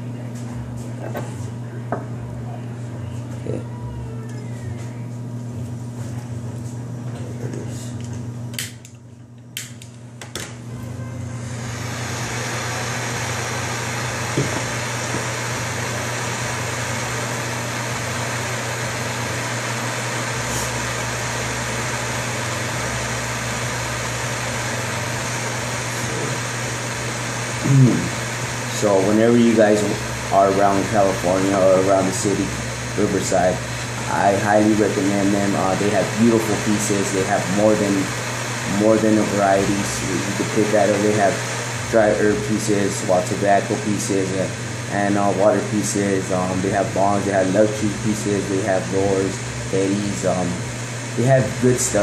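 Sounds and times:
low mains hum: 0.0s - 52.0s
torch igniter clicks: 8.0s - 10.6s
torch flame hissing: 11.3s - 52.0s.

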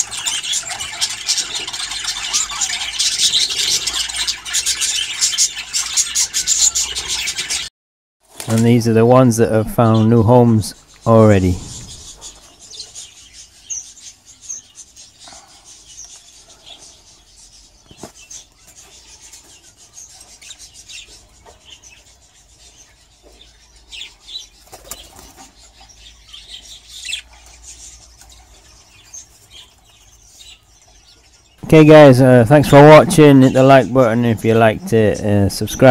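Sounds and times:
budgerigars chirping: 0.0s - 7.7s, 9.7s - 35.9s
wings fluttering: 0.0s - 8.8s, 17.8s - 19.0s, 24.6s - 25.6s.

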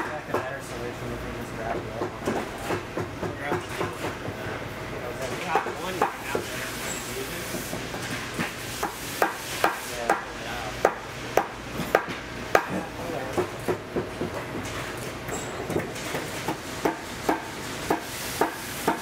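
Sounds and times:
sharp taps and knocks: 8.4s - 14.8s.

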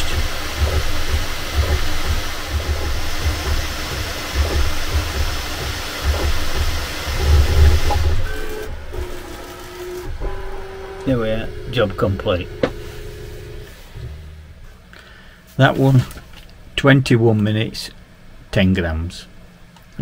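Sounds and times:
low thuds from moving axes: 0.0s - 8.4s
steady motor tones: 0.0s - 14.8s
cooling fans rushing: 0.0s - 20.0s.

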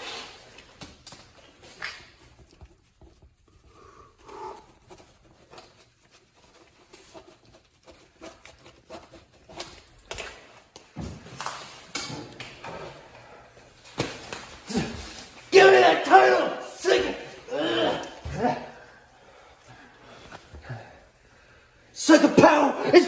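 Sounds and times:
pen scratching on paper: 4.8s - 9.8s.

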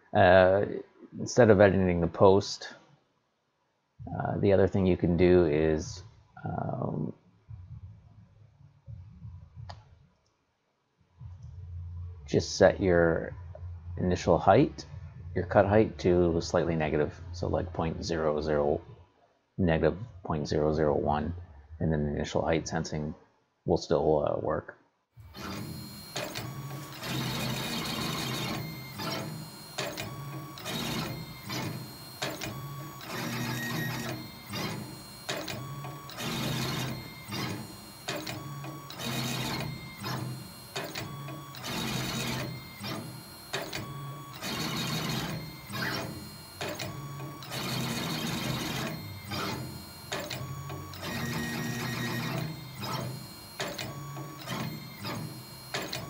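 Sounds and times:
stepper motors whining: 25.2s - 56.0s.

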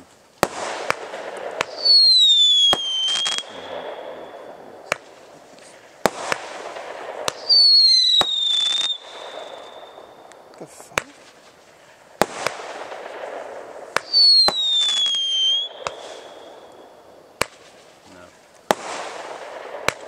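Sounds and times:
firework bangs: 0.0s - 20.0s
loud rushing hiss: 0.0s - 20.0s
shrill descending whistle: 14.1s - 16.4s.

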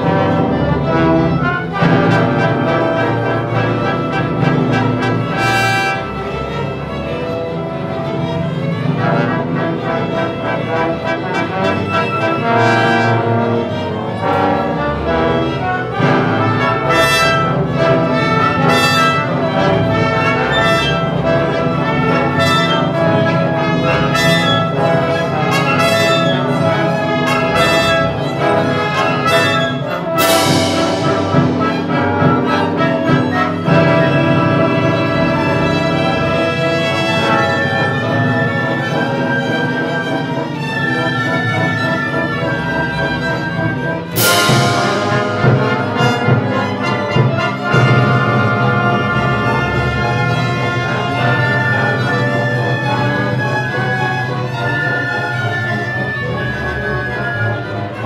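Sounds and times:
brass section: 0.0s - 58.0s
orchestra playing loudly: 0.0s - 58.0s
percussion crash: 29.6s - 36.5s, 44.1s - 48.8s.

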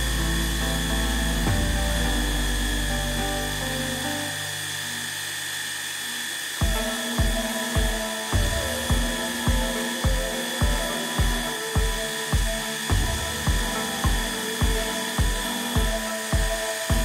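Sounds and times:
milling spindle high whine: 0.0s - 17.0s
background music with beat: 1.4s - 3.4s, 6.6s - 17.0s.

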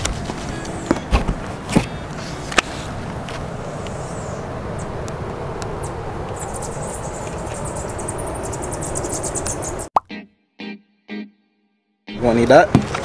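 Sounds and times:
high-pitched pulsing chirr: 5.8s - 11.3s.

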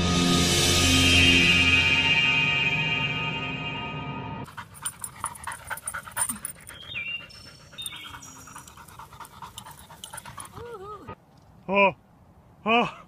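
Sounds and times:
background music: 0.0s - 4.5s
dog panting: 4.5s - 10.7s.

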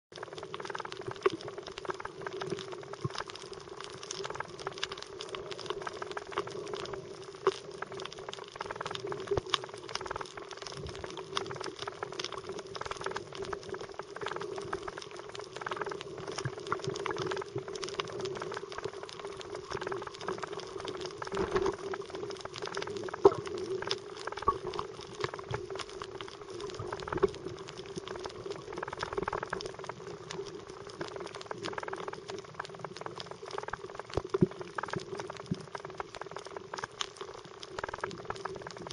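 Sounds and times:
steady low underwater hum: 0.1s - 38.9s
underwater crackle of small clicks: 0.1s - 38.9s.

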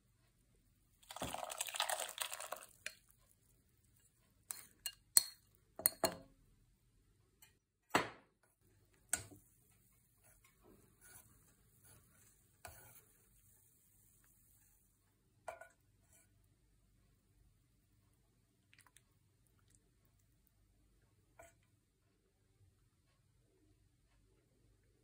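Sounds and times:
sauce pouring into soup: 1.0s - 3.1s
bowl clinking against pot: 4.5s - 6.3s.

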